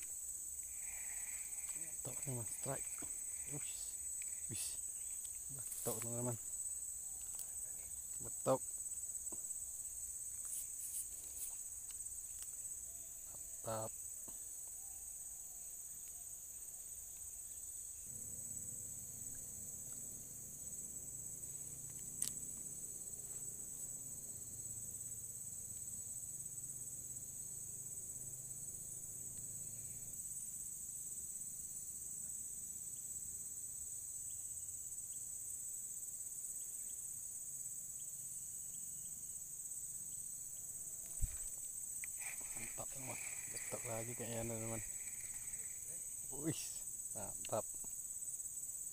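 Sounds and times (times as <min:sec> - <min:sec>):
insects shrilling: 0:00.0 - 0:31.1, 0:38.7 - 0:48.9
dull thump: 0:41.1 - 0:41.6.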